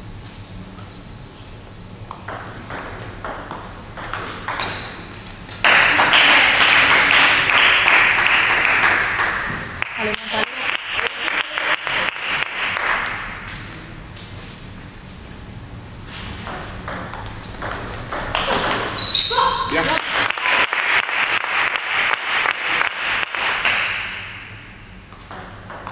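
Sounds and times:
hand-clapping: 5.6 - 13.6, 19.8 - 24.2.

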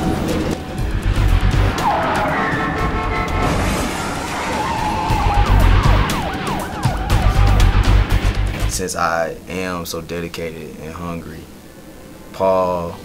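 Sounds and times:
tires squealing: 0.0 - 8.6
car driving: 0.0 - 8.8
music with heavy bass pulses: 0.0 - 8.8.

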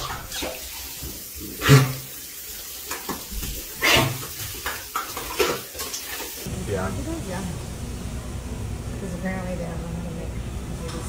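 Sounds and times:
shower water splashing on tiles: 0.0 - 6.5.

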